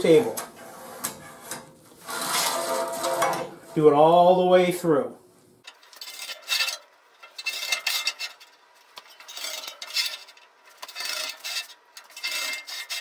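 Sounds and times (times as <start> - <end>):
metal scribe scraping steel: 0.6 - 4.0, 5.7 - 13.0.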